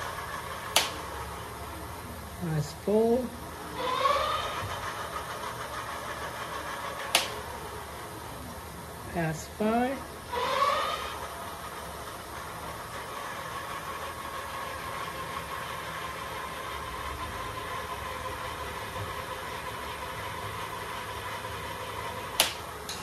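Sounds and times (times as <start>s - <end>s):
sharp click: 0.7s - 1.0s, 7.1s - 7.4s, 22.4s - 23.0s
electric motor whine: 3.6s - 5.2s.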